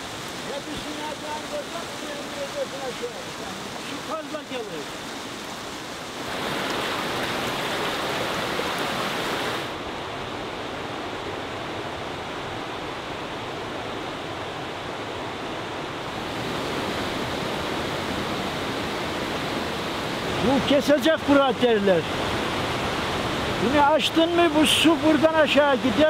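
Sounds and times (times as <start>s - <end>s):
water rushing down channel: 0.0s - 9.8s, 16.0s - 26.0s.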